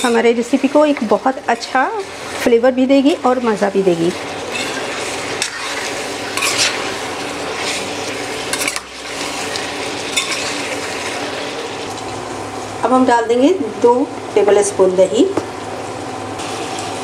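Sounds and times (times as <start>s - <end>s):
meat sizzling in oil: 0.0s - 17.0s
ladle scraping a pan: 4.2s - 11.7s.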